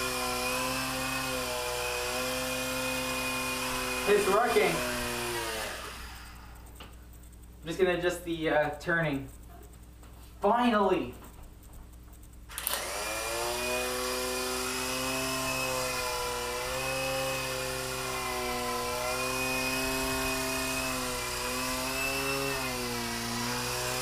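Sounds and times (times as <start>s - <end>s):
toy helicopter motor whine: 0.0s - 6.8s, 12.5s - 24.0s.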